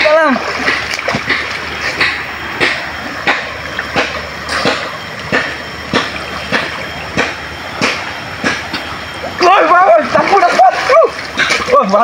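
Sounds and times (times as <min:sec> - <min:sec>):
rhythmic splashing in water: 0:00.0 - 0:12.0
rushing water: 0:00.0 - 0:12.0.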